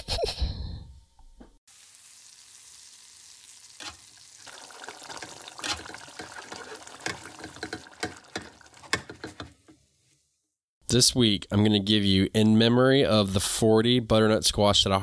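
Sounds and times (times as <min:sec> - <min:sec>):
food sizzling in a frying pan: 0:01.7 - 0:10.4.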